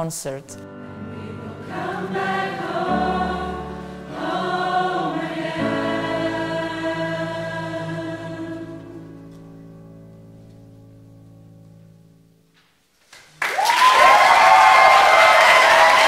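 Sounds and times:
choir holding a chord: 0.7 - 9.9
loud applause: 13.2 - 16.0.

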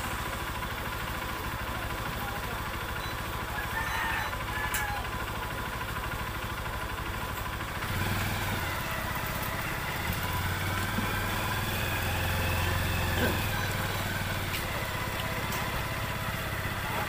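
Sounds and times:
crowd hubbub: 0.0 - 5.4, 8.9 - 17.0
small engine idling: 0.0 - 17.0.

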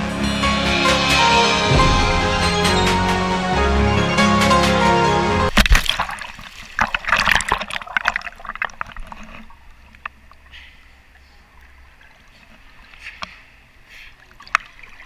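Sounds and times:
pool water splashing and lapping: 5.5 - 15.0.

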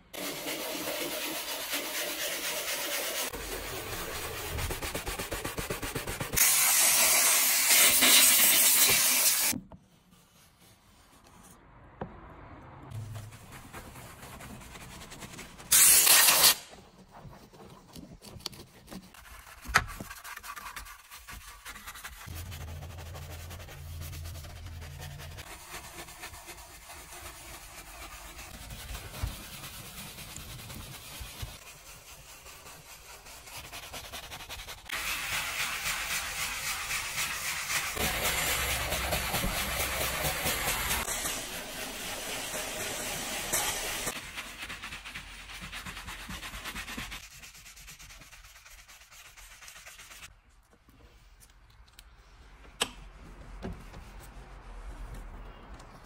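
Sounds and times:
brushes scrubbing plastic trim: 16.7 - 47.4.

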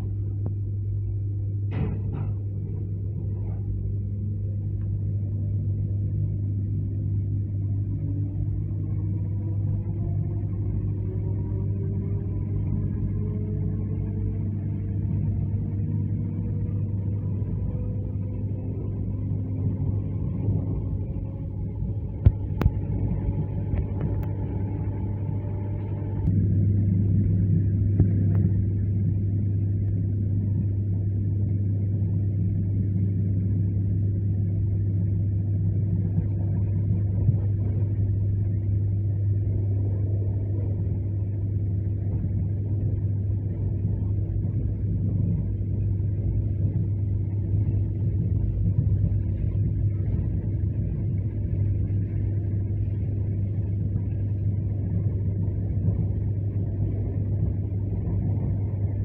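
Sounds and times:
low electrical hum: 0.0 - 59.0.

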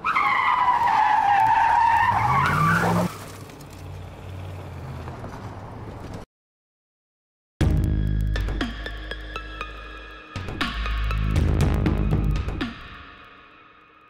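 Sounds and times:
car tyres squealing: 0.0 - 5.8
road and engine rumble: 0.0 - 6.3.

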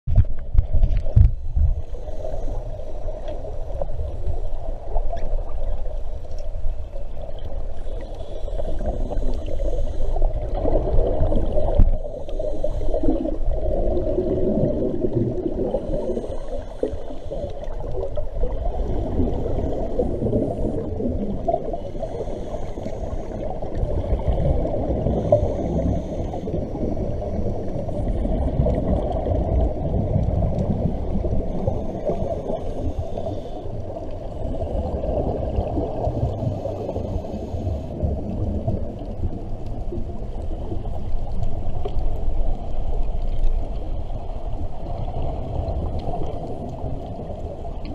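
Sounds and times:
regulator bubbles gurgling: 0.1 - 47.9
scuba breathing underwater: 1.2 - 5.3, 7.6 - 38.7.

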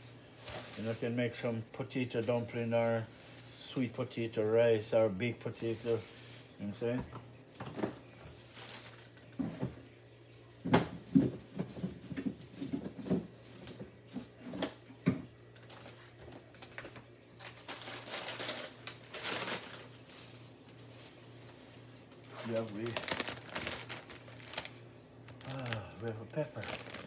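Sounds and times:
plastic bags rustling: 0.0 - 9.7, 10.6 - 27.0
faint low hum: 0.1 - 27.0
groceries knocking and tapping: 6.9 - 9.9, 10.6 - 19.8, 22.1 - 27.0.

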